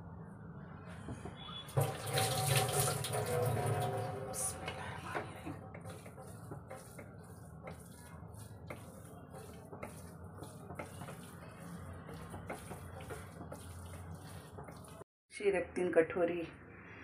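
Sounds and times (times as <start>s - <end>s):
spatula scraping a pan: 3.6s - 15.0s.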